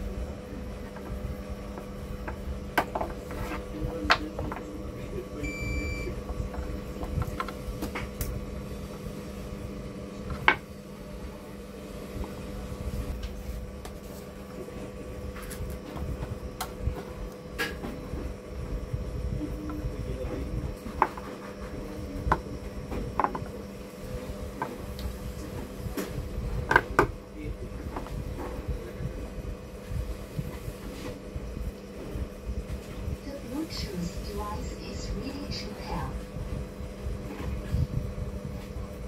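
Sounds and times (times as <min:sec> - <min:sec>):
electrical hum: 0:00.0 - 0:39.0
short high beep: 0:05.4 - 0:06.1.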